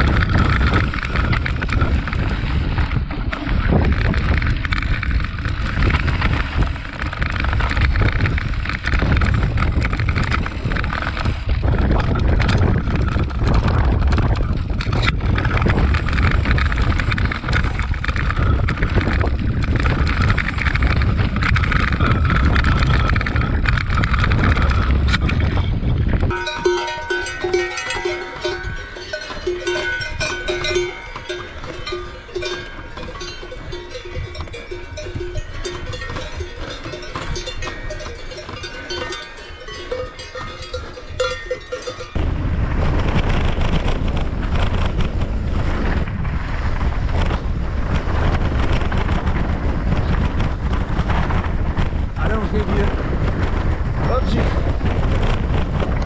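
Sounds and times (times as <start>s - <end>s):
cowbells ringing: 0.0s - 2.8s, 26.3s - 42.3s
tyres rattling over loose stones: 0.0s - 42.2s
wind rushing over microphone: 0.0s - 56.0s.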